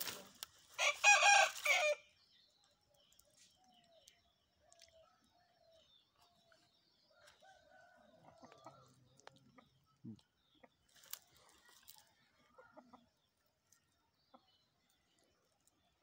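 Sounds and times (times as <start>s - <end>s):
rooster crowing: 0.8s - 2.0s.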